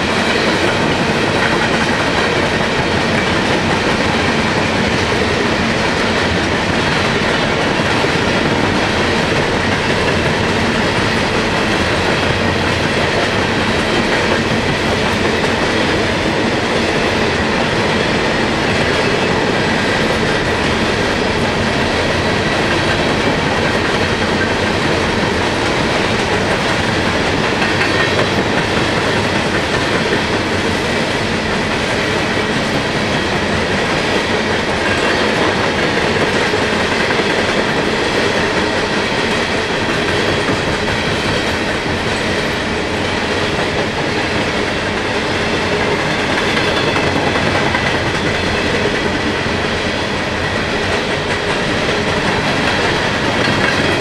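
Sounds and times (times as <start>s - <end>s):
train wheels running on rails: 0.0s - 54.0s.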